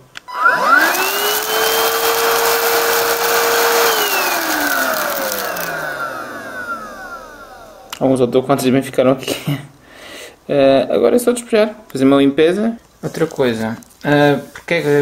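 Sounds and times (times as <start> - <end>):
stick vacuum motor whining: 0.1 - 8.1.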